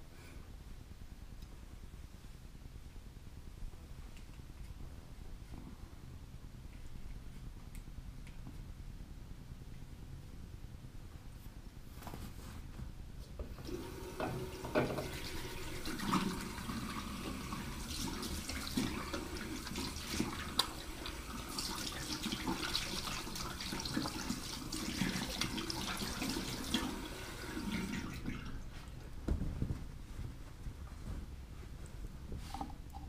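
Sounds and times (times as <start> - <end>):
tap running into a sink: 13.6 - 16.5.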